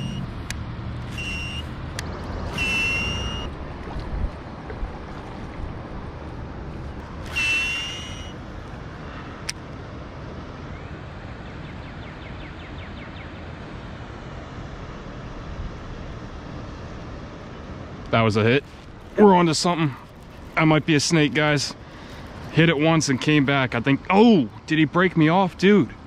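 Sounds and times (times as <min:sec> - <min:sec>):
high whistled note: 0:00.0 - 0:00.3, 0:01.1 - 0:01.7, 0:02.5 - 0:03.6, 0:07.2 - 0:08.4
fishing reel ticking: 0:01.1 - 0:01.7, 0:02.5 - 0:03.5, 0:07.2 - 0:08.4
outdoor hiss: 0:14.0 - 0:25.6.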